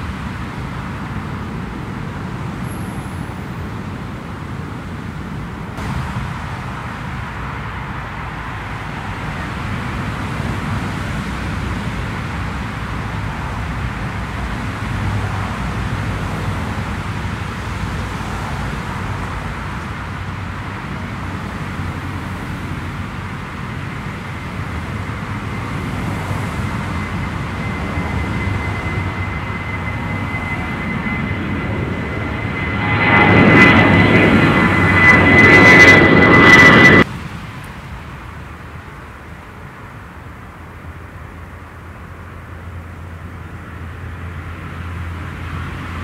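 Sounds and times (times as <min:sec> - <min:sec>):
distant jet engines rumbling: 0:00.0 - 0:46.0.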